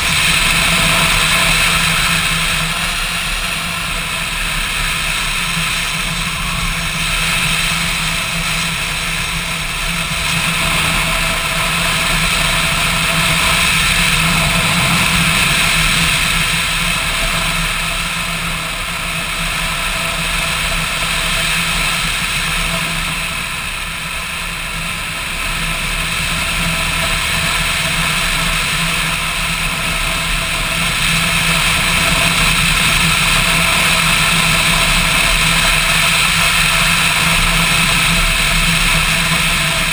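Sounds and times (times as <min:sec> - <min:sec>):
motorcycle engine running: 0:00.0 - 0:39.9
wind rushing: 0:10.0 - 0:18.0.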